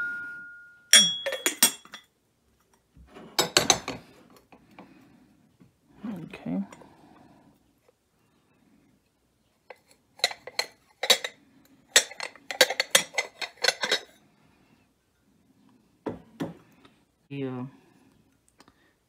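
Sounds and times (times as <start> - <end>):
ceramic teapot and cup clinking: 0.9 - 2.1, 9.7 - 14.2.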